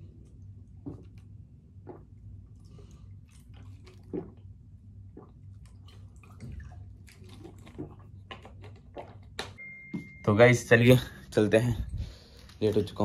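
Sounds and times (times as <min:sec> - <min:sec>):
steady low hum: 0:00.0 - 0:13.0
person gulping water: 0:00.3 - 0:09.4.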